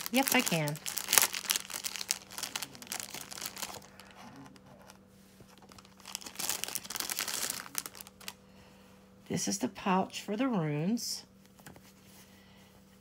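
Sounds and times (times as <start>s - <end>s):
plastic packaging crinkling: 0.0s - 4.6s, 5.5s - 8.4s.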